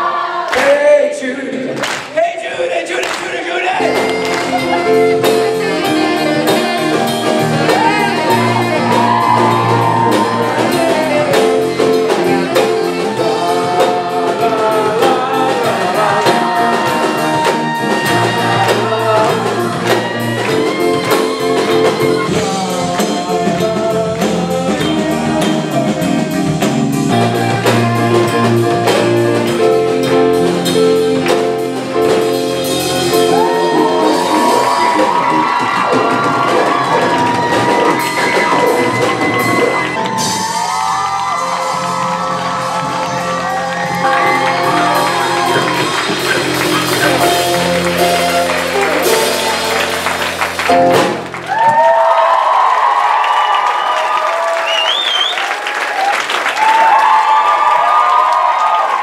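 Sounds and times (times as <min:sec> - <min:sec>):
saxophone melody: 0:03.7 - 0:51.9
electric guitar: 0:03.8 - 0:52.1
held keyboard chords: 0:03.8 - 0:52.9
steady drum beat: 0:03.8 - 0:53.2.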